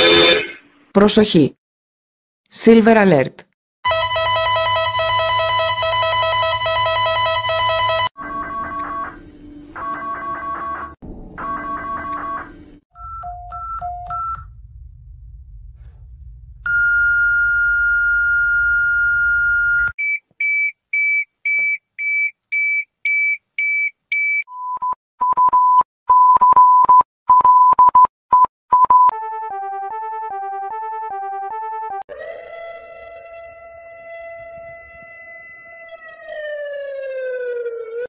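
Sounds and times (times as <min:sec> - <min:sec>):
low hum: 0:11.0 - 0:19.9.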